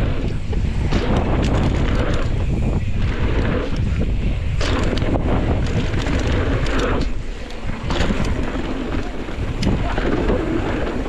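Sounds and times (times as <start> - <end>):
bike rattling over bumps: 0.0 - 11.0
tyres rumbling on dirt: 0.0 - 11.0
wind rushing over microphone: 0.0 - 11.0.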